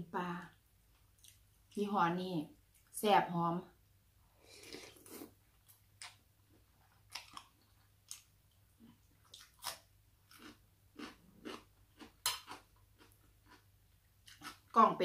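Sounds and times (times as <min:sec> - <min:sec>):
person chewing crunchy food: 0:04.5 - 0:14.8.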